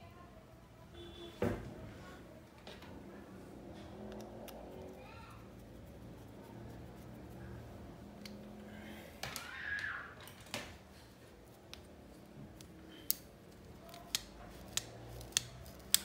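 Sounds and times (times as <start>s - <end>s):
clicks of small metal parts: 12.6s - 16.0s.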